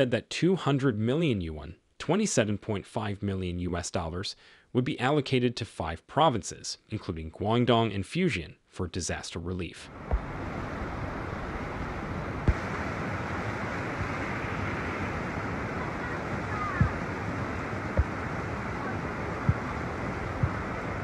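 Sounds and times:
floodwater rushing: 9.9s - 21.0s.

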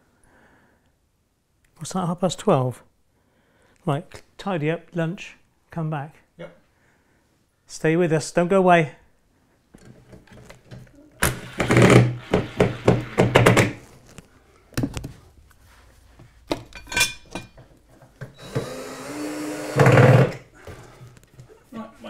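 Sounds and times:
cordless drill driving a screw: 11.2s - 13.2s, 18.4s - 20.4s
knock: 12.3s - 13.8s.

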